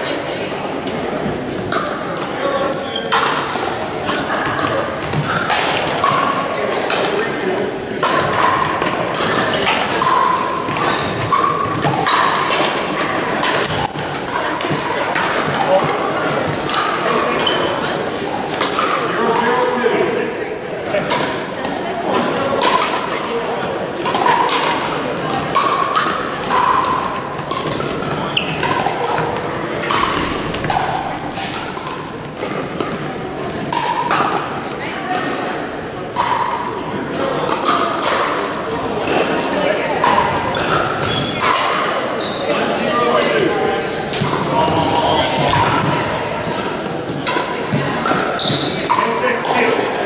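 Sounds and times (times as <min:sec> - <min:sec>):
paddles hitting plastic balls: 0:01.5 - 0:19.5, 0:24.0 - 0:41.9, 0:44.1 - 0:49.8
ball bouncing on court: 0:24.0 - 0:34.4, 0:43.8 - 0:49.7.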